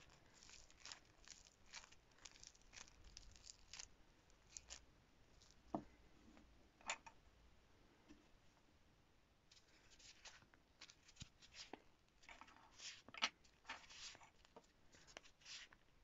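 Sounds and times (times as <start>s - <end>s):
clay crackling and crunching: 0.0s - 6.0s, 9.6s - 15.8s.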